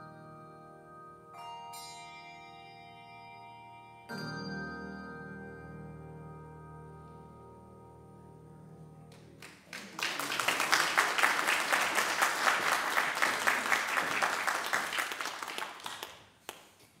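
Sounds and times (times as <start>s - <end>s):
handbell choir and piano chord: 0.0s - 6.9s
congregation applauding: 9.1s - 16.8s.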